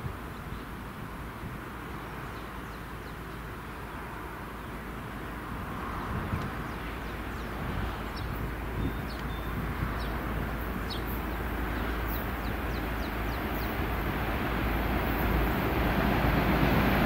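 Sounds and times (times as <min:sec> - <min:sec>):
diesel locomotive engine rumble: 0:00.0 - 0:17.0
wheel and rail noise: 0:00.0 - 0:17.0
bird chirping: 0:06.7 - 0:13.8.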